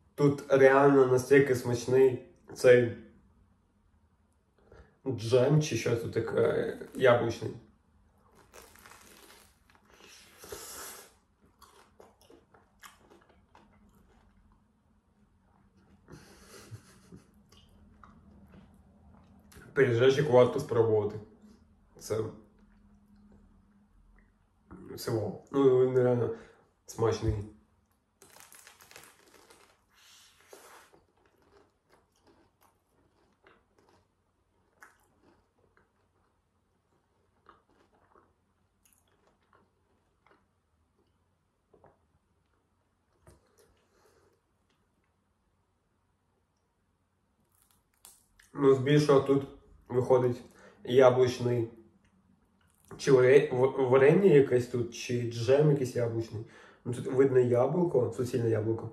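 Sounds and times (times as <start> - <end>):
crust crunching while chewing: 8.1 - 14.7, 15.4 - 19.7, 27.8 - 45.2, 47.4 - 48.6
small chewing clicks: 11.4 - 14.7, 16.8 - 19.7, 30.7 - 45.2.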